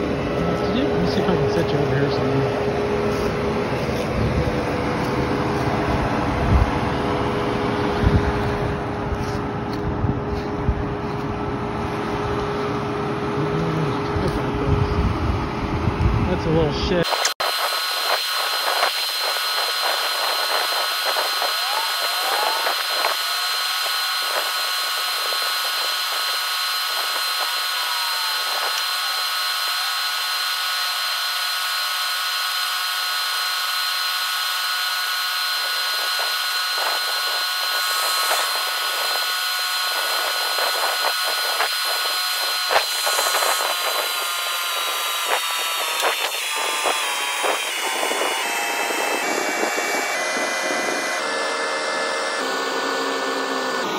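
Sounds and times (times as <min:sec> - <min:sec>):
tractor diesel engine whining: 0:00.0 - 0:53.9
hydraulic pump raising trailer bed: 0:16.8 - 0:53.9.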